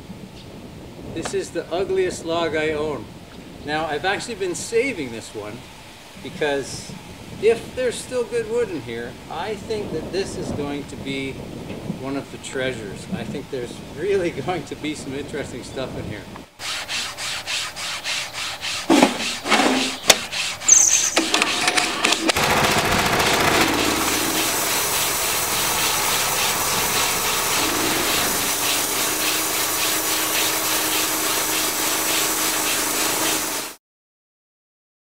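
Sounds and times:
band saw rasping through wood: 16.6 - 33.8
sharp knocks and squeaks: 18.2 - 22.4.

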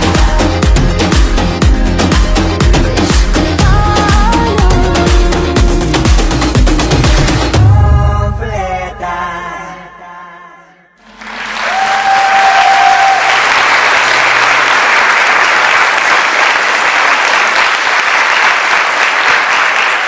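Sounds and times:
audience applause: 11.0 - 20.0.

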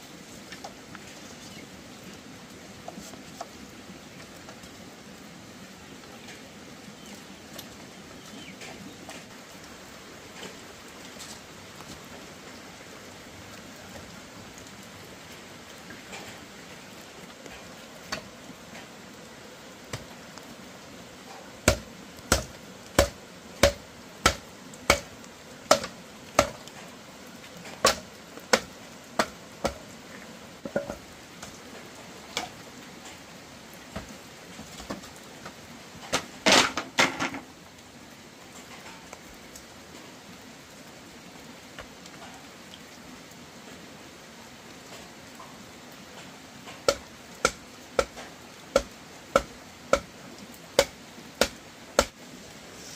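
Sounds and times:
hand tool striking material: 21.7 - 25.1.

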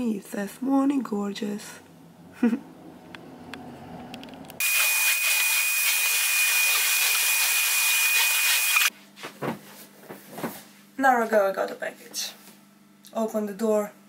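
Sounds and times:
electric appliance whirring: 2.9 - 8.9.

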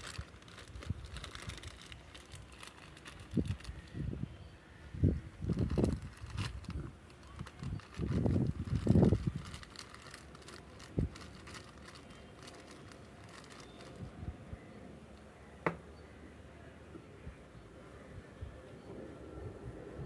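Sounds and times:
plastic bag crinkling: 0.0 - 4.0, 5.4 - 14.2.

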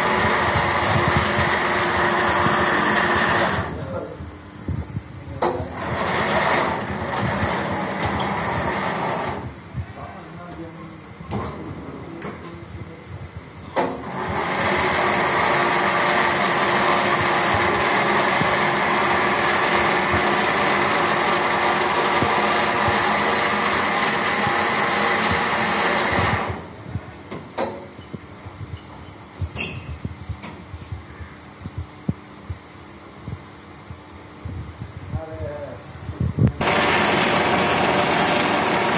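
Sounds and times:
sewing machine running: 0.0 - 3.8, 5.7 - 9.5, 13.8 - 26.7, 36.6 - 38.9.

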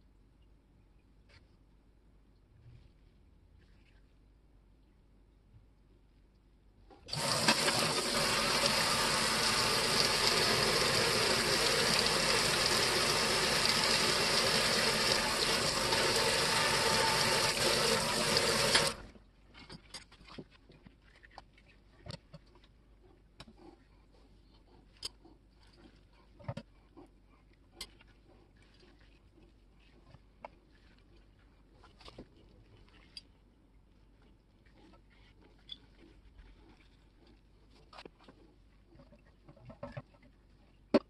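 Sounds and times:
faucet water splashing on metal: 7.1 - 19.0
faint clicks and taps: 19.5 - 33.3.

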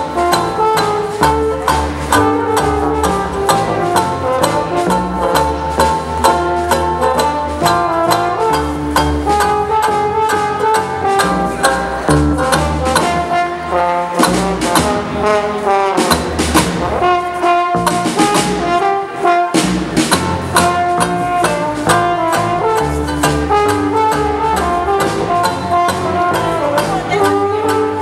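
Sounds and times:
double bass: 0.0 - 28.0
hot jazz band playing: 0.0 - 28.0
trumpet melody: 0.0 - 28.0
snare drum beat: 14.1 - 18.9, 19.5 - 26.2.

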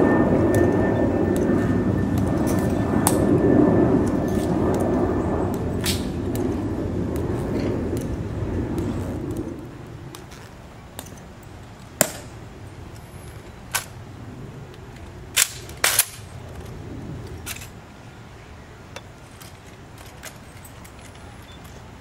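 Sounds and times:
rifle clacking and snapping: 15.4 - 16.3.

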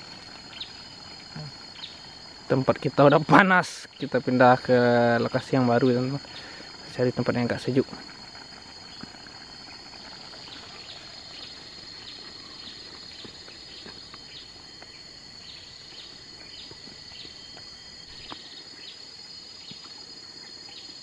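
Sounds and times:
high-pitched insect drone: 0.0 - 21.0.

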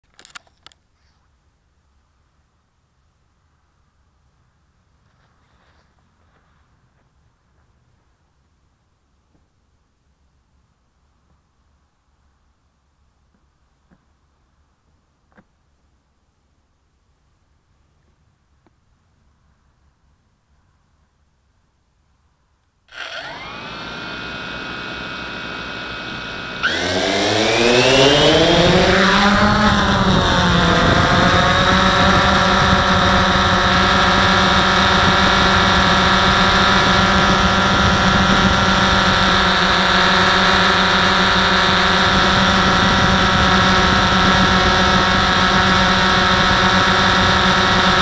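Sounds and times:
drone motors whining: 22.9 - 48.0.

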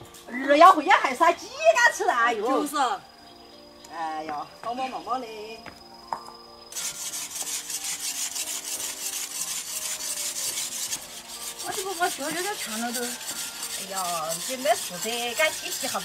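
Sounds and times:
women talking: 0.3 - 3.0, 11.6 - 13.2, 13.8 - 16.0.

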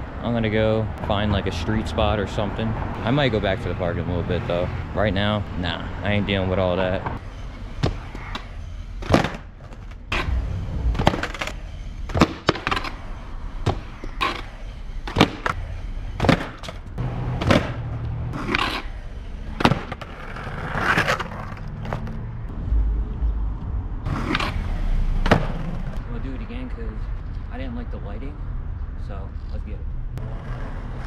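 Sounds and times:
skateboard wheels rolling on concrete: 0.0 - 22.5, 24.0 - 26.4, 30.2 - 31.0
skateboard clacking: 11.0 - 13.0, 17.4 - 17.8, 18.4 - 22.2.

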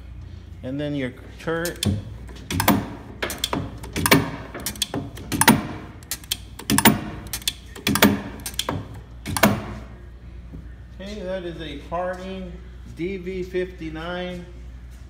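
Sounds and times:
lathe slide metallic clicks: 1.6 - 9.8.

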